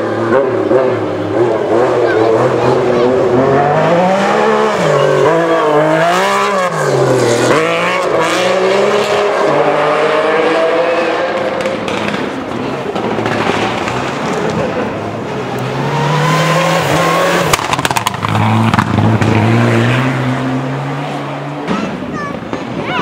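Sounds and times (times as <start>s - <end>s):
rally car engine revving: 0.0s - 22.8s
sharp cracks: 11.5s - 14.6s, 17.5s - 18.4s.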